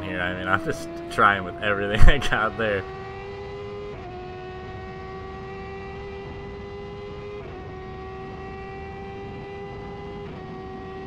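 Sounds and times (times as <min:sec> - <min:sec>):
race car engine accelerating: 0:00.0 - 0:11.0
wind and road rush: 0:00.0 - 0:11.0.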